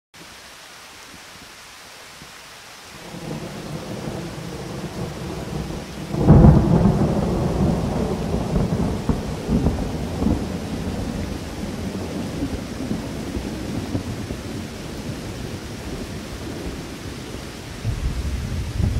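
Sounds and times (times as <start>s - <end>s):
rain hissing: 0.2s - 18.9s
thunder rumbling: 3.0s - 18.9s
loud thunderclap: 3.1s - 14.6s, 17.8s - 18.9s.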